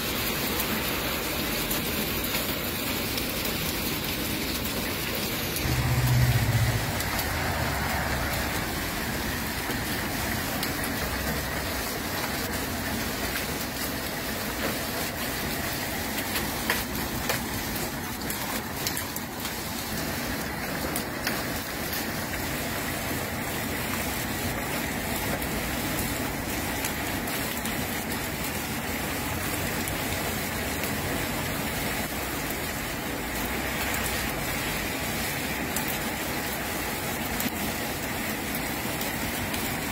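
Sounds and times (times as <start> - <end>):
heavy rain and hail falling: 0.0 - 39.9
sharp hail ticks: 0.4 - 22.4.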